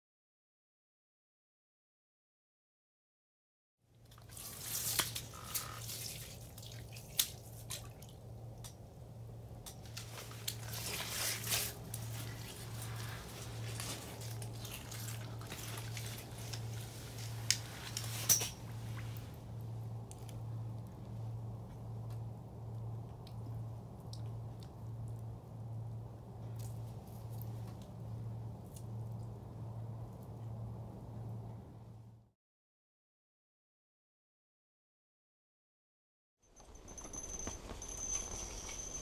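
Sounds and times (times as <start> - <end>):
water dripping and splashing: 4.0 - 8.9, 9.8 - 19.3
steady low hum: 4.1 - 32.3.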